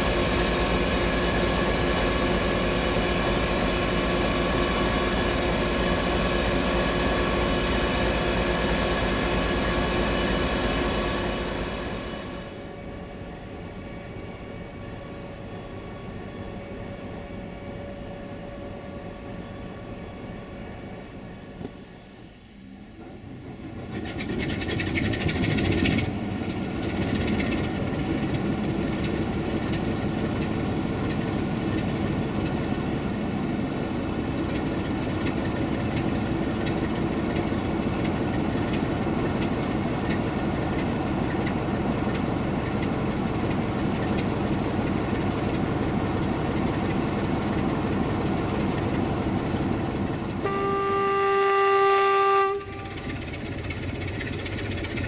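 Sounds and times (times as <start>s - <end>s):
diesel locomotive engine idling: 0.0s - 55.0s
locomotive horn: 50.4s - 53.4s.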